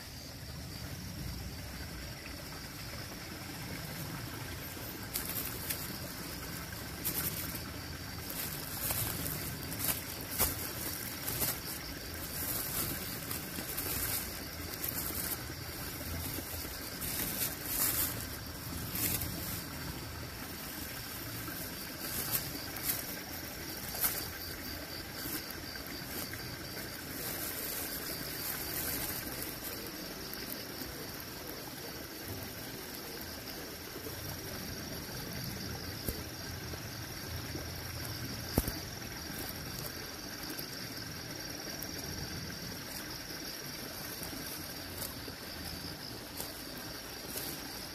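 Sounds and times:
hand brushing shade net: 0:05.0 - 0:29.9.

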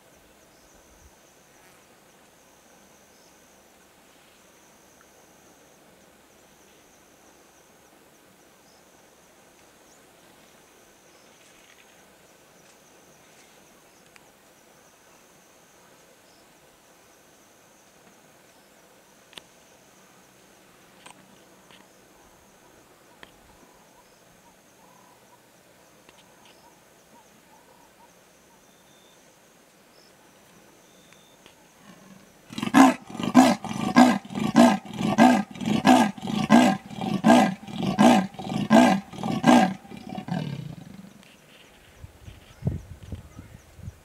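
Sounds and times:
leopard sawing call: 0:32.0 - 0:41.2.

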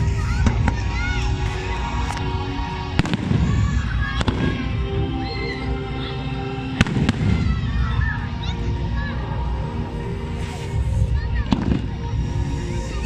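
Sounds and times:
fireworks bursting: 0:00.0 - 0:04.8, 0:06.8 - 0:08.4, 0:10.3 - 0:12.2
music playing: 0:00.0 - 0:13.0.

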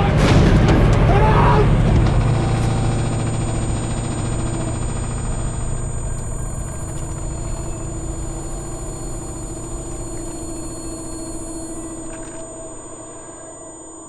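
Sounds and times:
low rumble: 0:00.0 - 0:13.0
steady hum: 0:00.0 - 0:14.0
thin high whine: 0:01.1 - 0:14.0.

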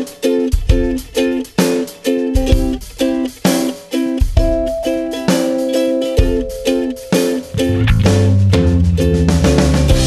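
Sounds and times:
strummed string instrument chords: 0:02.0 - 0:10.0
low beat: 0:04.4 - 0:10.0.

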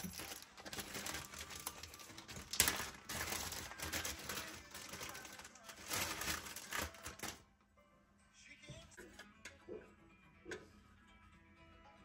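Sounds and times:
plastic bag crinkling: 0:00.0 - 0:07.4.

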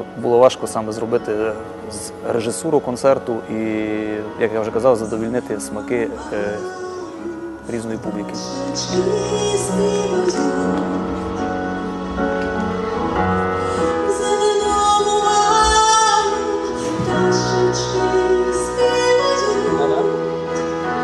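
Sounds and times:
keyboard accompaniment: 0:00.0 - 0:21.0
woman singing into microphone: 0:04.6 - 0:11.8, 0:13.7 - 0:21.0.

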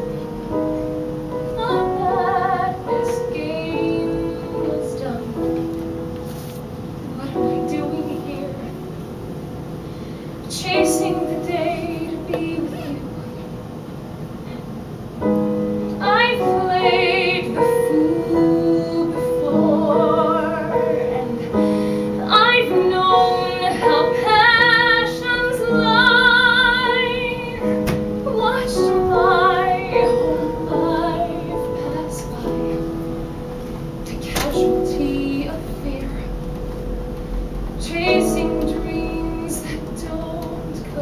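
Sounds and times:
piano accompaniment: 0:00.0 - 0:41.0
woman singing into microphone: 0:01.5 - 0:05.7, 0:07.1 - 0:08.8, 0:10.5 - 0:13.4, 0:16.0 - 0:33.0, 0:34.0 - 0:36.6, 0:37.8 - 0:41.0.

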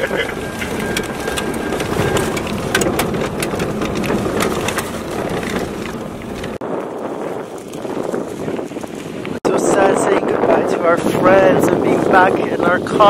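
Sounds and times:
vehicle cabin rumble: 0:00.0 - 0:09.4
clicks and rattles: 0:00.6 - 0:06.6.

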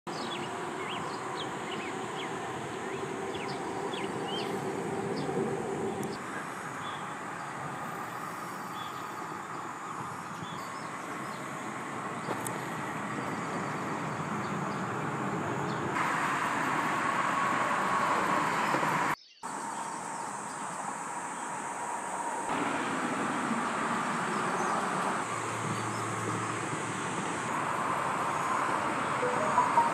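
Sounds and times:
small birds chirping: 0:00.1 - 0:07.7, 0:08.5 - 0:14.9
steady rushing background noise: 0:00.2 - 0:29.9.

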